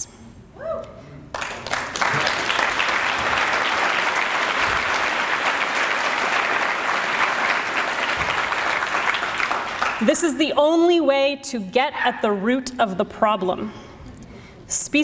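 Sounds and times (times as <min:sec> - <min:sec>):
audience applauding: 0:01.3 - 0:10.1.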